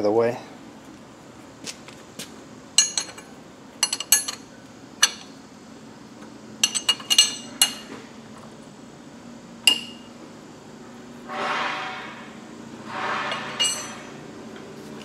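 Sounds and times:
wrench clinking on metal nut: 2.8 - 5.3, 6.6 - 7.9, 9.7 - 10.1, 13.4 - 14.1.

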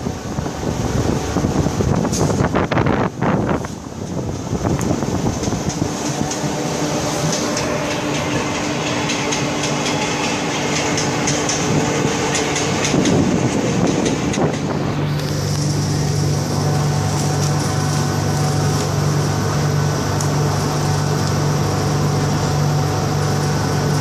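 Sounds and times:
steady low hum: 0.0 - 24.0
train rolling noise: 0.0 - 24.0
wheels clicking over rail joints: 3.6 - 15.8.

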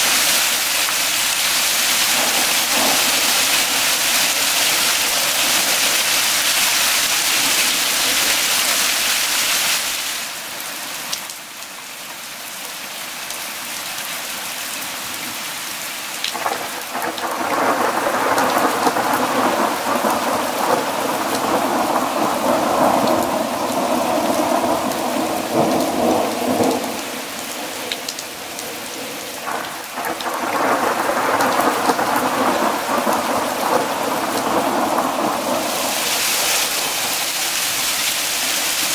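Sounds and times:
hail and heavy rain: 0.0 - 11.6, 14.0 - 38.9
rolling thunder: 2.1 - 4.4, 29.4 - 37.2.

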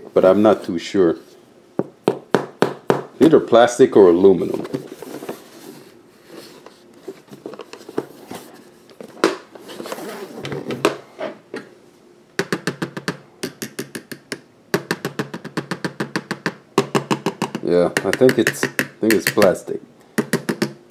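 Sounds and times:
rapid hollow taps on case: 12.4 - 19.6.

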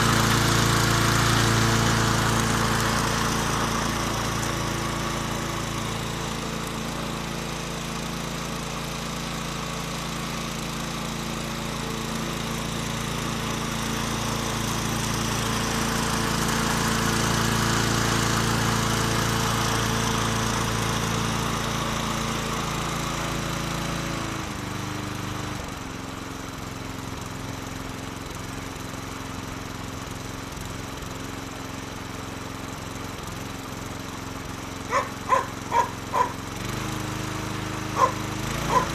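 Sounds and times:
lawn mower cutting grass: 0.0 - 38.9.

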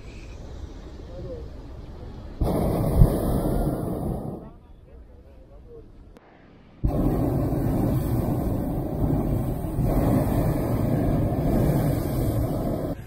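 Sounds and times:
propane burner blast: 2.4 - 4.6, 6.8 - 13.0.

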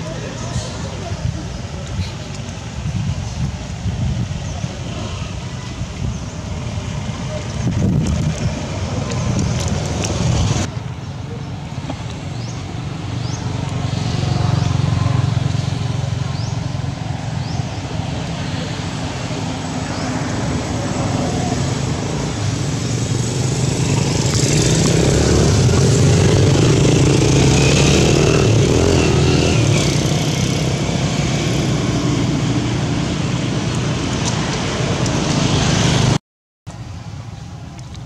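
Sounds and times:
traffic noise: 0.0 - 38.0
engine passing close by: 12.4 - 36.2.

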